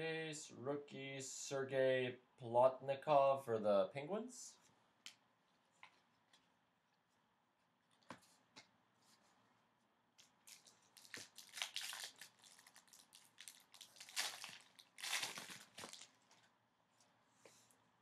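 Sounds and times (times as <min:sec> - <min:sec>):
foil wrapper crinkling and tearing: 0:10.2 - 0:16.5.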